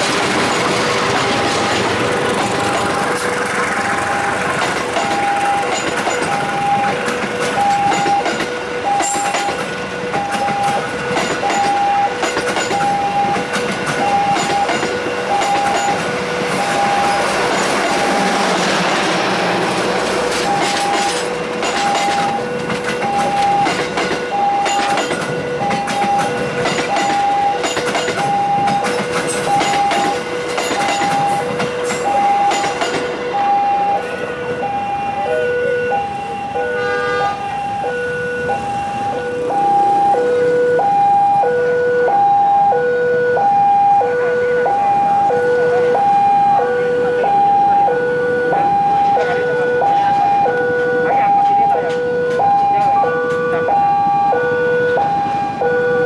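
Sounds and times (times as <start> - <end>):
train wheels clattering over rails: 0.0 - 33.7
level crossing ding-dong alarm: 5.0 - 16.0, 20.5 - 56.0.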